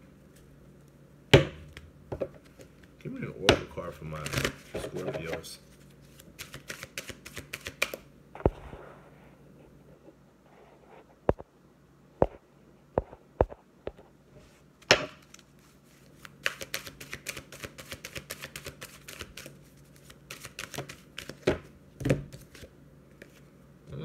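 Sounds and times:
cards shuffling clicks and slaps: 1.7s - 8.6s, 14.8s - 23.4s.

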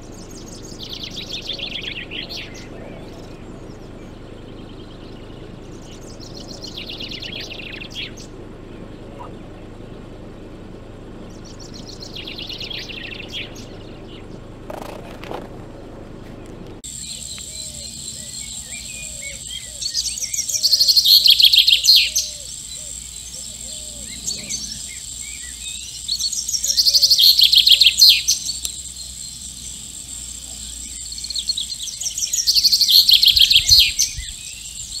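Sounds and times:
chaffinch singing: 0.0s - 35.0s.

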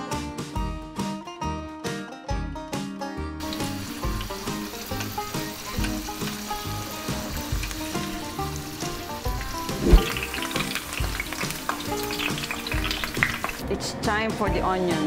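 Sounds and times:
background music: 0.0s - 15.0s
potatoes sizzling in oil: 3.4s - 13.6s
sharp thump: 9.7s - 10.2s.

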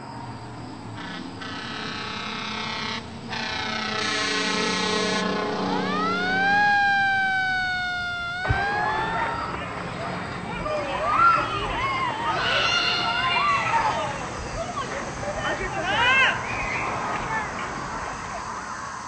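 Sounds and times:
chord-like drone: 1.0s - 10.5s
siren-like tone sliding in pitch: 1.9s - 9.7s.

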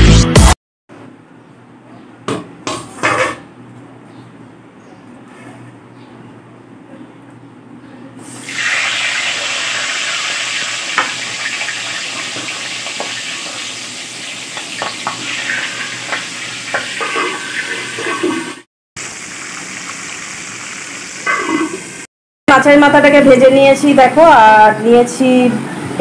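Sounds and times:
fish sizzling in hot oil: 8.3s - 22.0s
oil popping and crackling: 8.5s - 17.0s.

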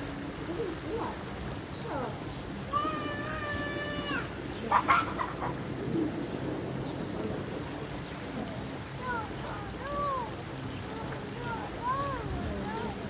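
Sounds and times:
children calling out: 1.9s - 5.6s, 8.9s - 13.0s.

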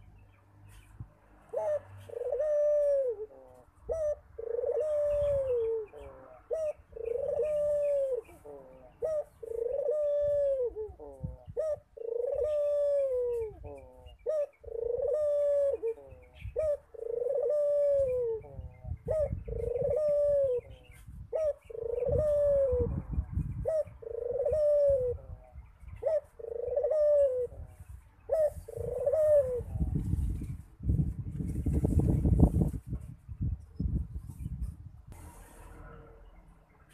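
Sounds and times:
dove cooing: 1.5s - 30.2s.

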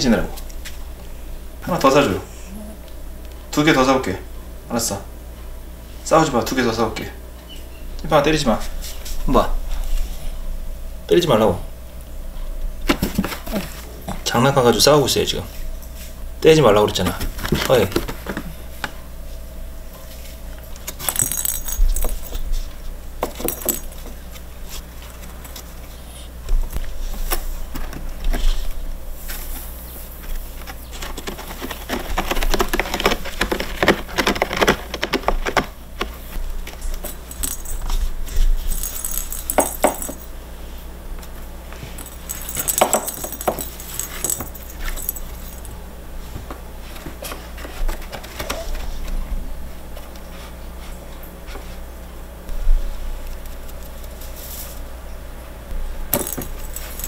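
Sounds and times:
cat toy balls clicking and rattling: 20.8s - 22.4s, 23.2s - 24.0s, 31.0s - 40.3s, 41.9s - 45.7s, 56.1s - 57.0s
cats clawing at toy: 30.6s - 40.3s, 41.8s - 45.7s.

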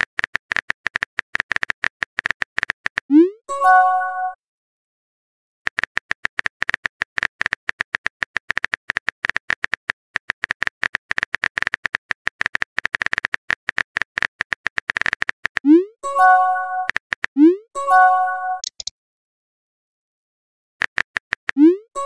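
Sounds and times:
phone keyboard clicks: 18.6s - 18.9s.

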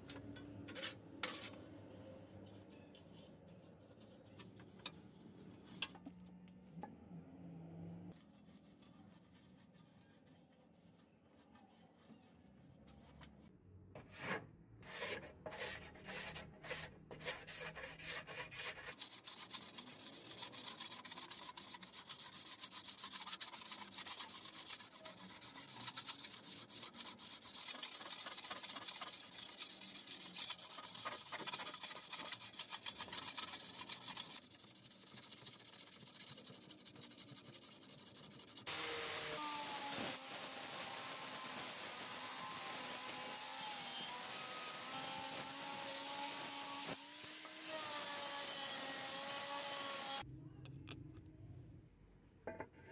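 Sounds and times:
bristle brush scrubbing metal: 0.7s - 6.0s, 8.2s - 38.8s.

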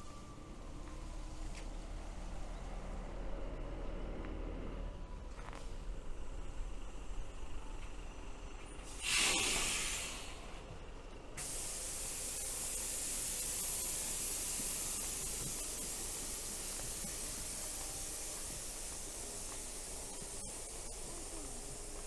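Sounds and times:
hissing spray: 9.0s - 10.3s, 11.4s - 22.0s.

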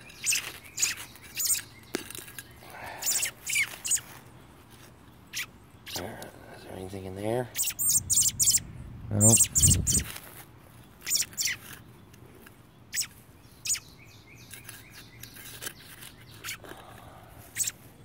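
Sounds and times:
bird chirping: 0.0s - 18.0s
trowel scraping in soil: 14.4s - 16.8s.

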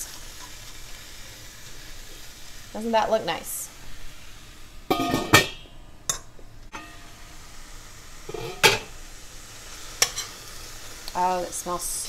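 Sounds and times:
metal lid clanking on wok: 4.9s - 7.0s, 8.3s - 8.9s.

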